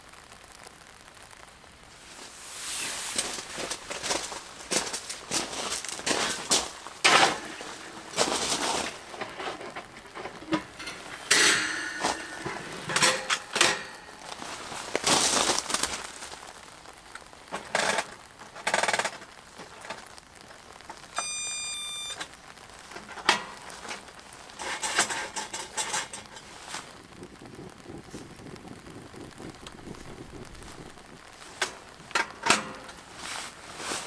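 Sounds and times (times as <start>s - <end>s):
heater knocks and rustles: 2.1s - 16.4s
electric igniter buzz: 21.0s - 22.4s.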